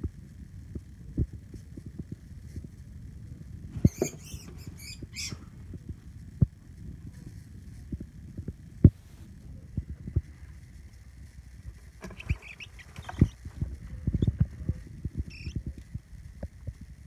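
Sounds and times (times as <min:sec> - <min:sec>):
low handling rumble: 0:00.0 - 0:17.0
mouse squeaking: 0:03.8 - 0:05.5, 0:12.0 - 0:13.4, 0:14.1 - 0:14.4, 0:15.2 - 0:15.6.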